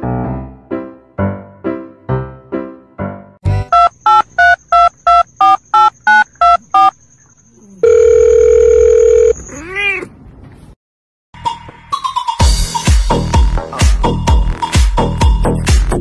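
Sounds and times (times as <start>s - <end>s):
phone keypad dialling beeps: 3.7s - 6.9s, 7.8s - 9.4s
steady phone tone: 3.7s - 7.0s, 7.8s - 9.4s
cat meow: 9.4s - 10.2s.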